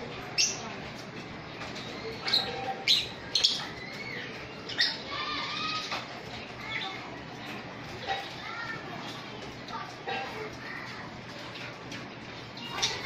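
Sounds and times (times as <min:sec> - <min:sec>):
lovebirds high-pitched chirps: 0:00.1 - 0:08.4, 0:12.5 - 0:13.0.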